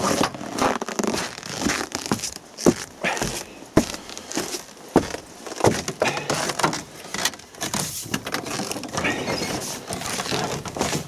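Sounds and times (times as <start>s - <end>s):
footsteps on frozen snow: 0.0s - 6.5s.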